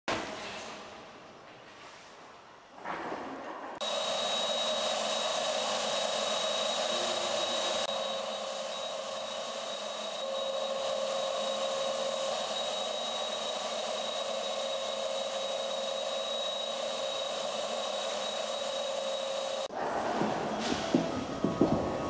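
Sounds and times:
high whine: 0:03.8 - 0:19.8
machine whirring and hissing: 0:03.8 - 0:22.0.

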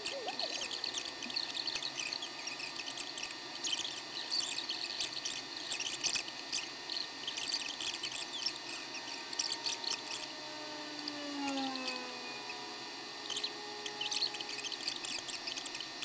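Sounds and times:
gas burner running: 0:07.9 - 0:16.0.

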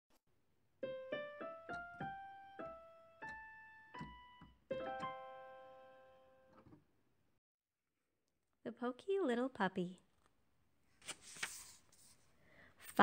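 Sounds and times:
piano jingle: 0:00.8 - 0:06.7.

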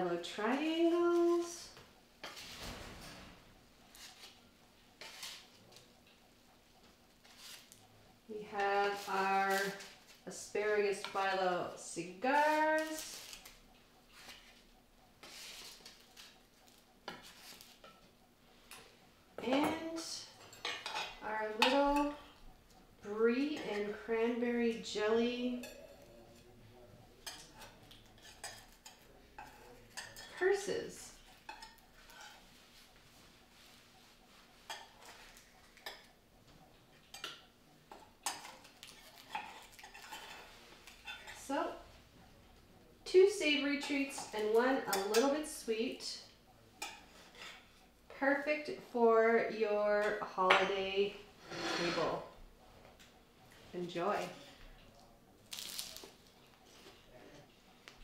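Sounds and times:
spatula scraping pastries: 0:03.9 - 0:05.8, 0:07.2 - 0:07.9, 0:12.1 - 0:18.8, 0:27.2 - 0:36.1, 0:36.9 - 0:42.0, 0:46.8 - 0:47.9, 0:50.6 - 0:52.4.

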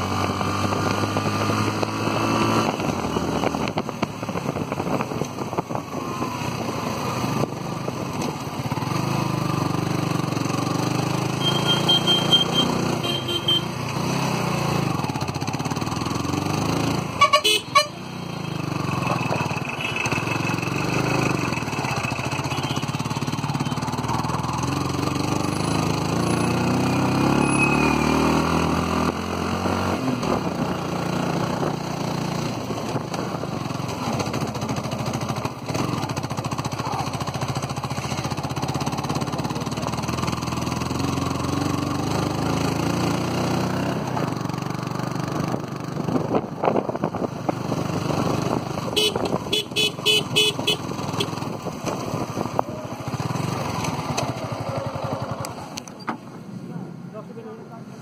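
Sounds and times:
motorcycle engine running: 0:00.0 - 0:56.4
road noise: 0:00.0 - 0:58.0
horn beeps: 0:11.3 - 0:13.8, 0:17.2 - 0:18.0, 0:49.0 - 0:51.3.

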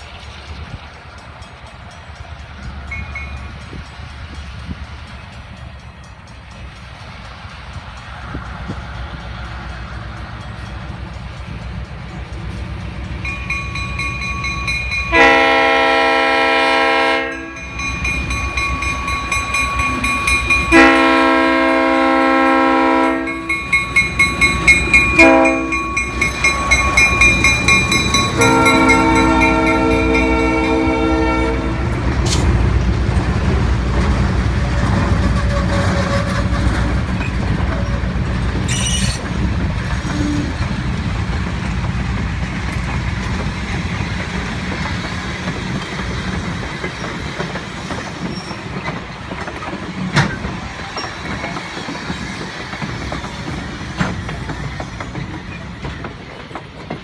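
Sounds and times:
locomotive engine rumble: 0:00.0 - 0:57.0
locomotive bell ringing: 0:01.0 - 0:08.1, 0:09.7 - 0:31.9, 0:41.5 - 0:53.6
locomotive horn blast: 0:15.1 - 0:17.7, 0:20.6 - 0:23.6, 0:25.1 - 0:25.9, 0:28.2 - 0:32.5, 0:34.9 - 0:37.0.

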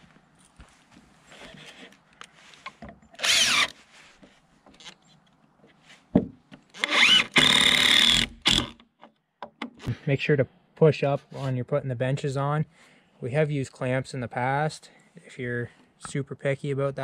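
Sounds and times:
cordless drill driving screws: 0:03.2 - 0:03.8, 0:06.8 - 0:08.8.

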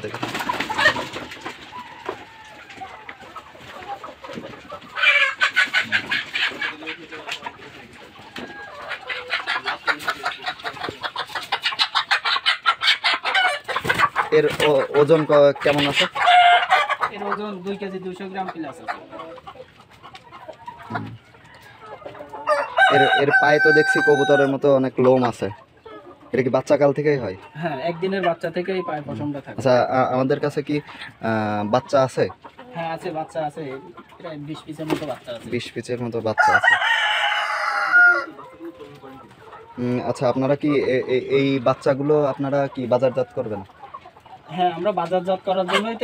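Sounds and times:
chickens clucking: 0:00.0 - 0:46.0
chicken squawking loudly: 0:00.1 - 0:07.4, 0:08.3 - 0:17.7, 0:22.2 - 0:24.6, 0:36.4 - 0:41.6
rooster crowing: 0:22.5 - 0:24.5, 0:36.4 - 0:38.3.

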